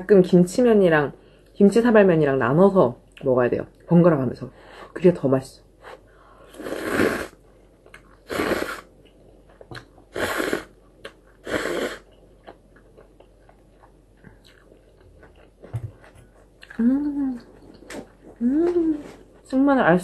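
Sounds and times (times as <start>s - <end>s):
slurping noodles: 6.5s - 7.4s, 8.2s - 8.9s, 10.1s - 10.8s, 11.4s - 12.1s
chewing clicks: 12.4s - 15.6s.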